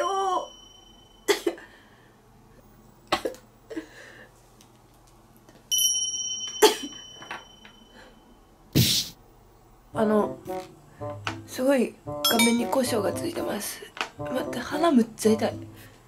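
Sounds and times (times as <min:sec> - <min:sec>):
steady high beep-like tone: 0:12.3 - 0:12.7.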